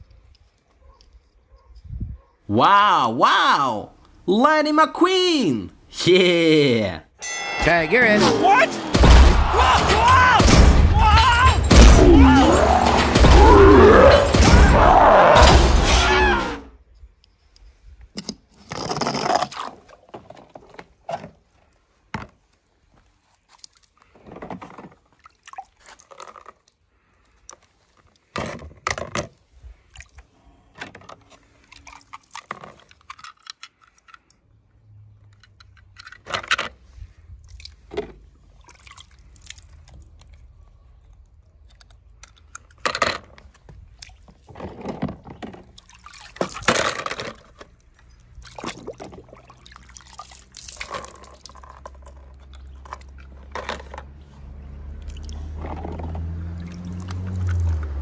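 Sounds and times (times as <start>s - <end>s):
small hard objects clattering: 50.5s - 54.1s.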